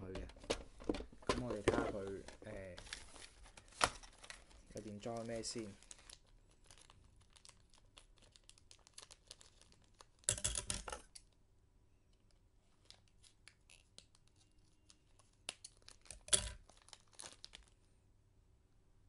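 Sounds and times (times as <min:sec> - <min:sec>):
plastic bag crinkling: 0:01.4 - 0:10.3, 0:12.8 - 0:17.8.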